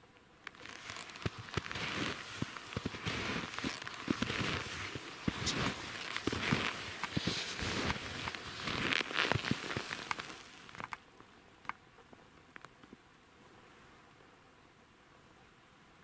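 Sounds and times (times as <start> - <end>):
skis crunching through snow: 0.5 - 11.0.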